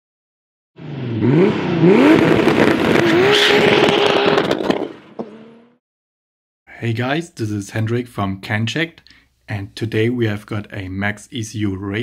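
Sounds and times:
engine revving with crackles: 0.8 - 5.8.

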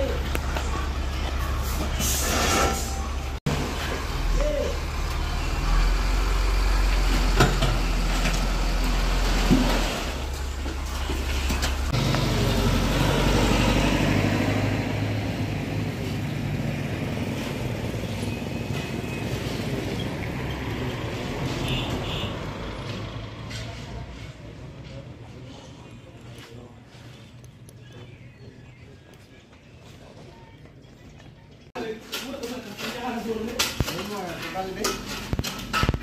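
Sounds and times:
dump truck engine running: 2.8 - 21.7.

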